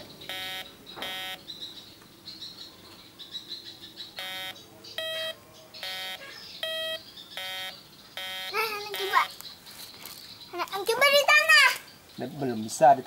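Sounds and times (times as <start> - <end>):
metal detector beeps: 0.3 - 1.4, 4.2 - 9.3.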